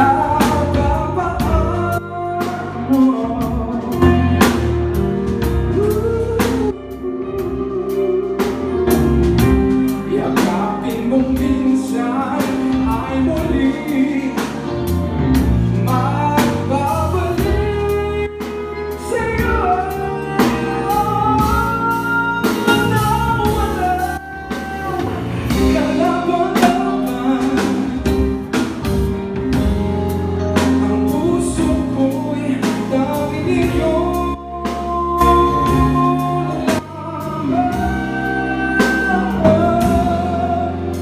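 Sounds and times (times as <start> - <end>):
man singing: 0.0 - 28.9, 30.5 - 41.0
drum kit: 0.0 - 41.0
electric bass: 0.0 - 41.0.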